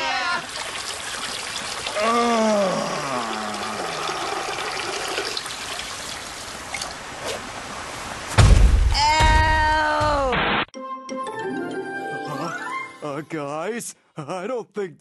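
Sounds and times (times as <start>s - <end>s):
liquid pouring and splashing: 0.3s - 7.5s
falling voice-like cries: 2.0s - 4.1s
loud low thud: 8.4s - 10.6s.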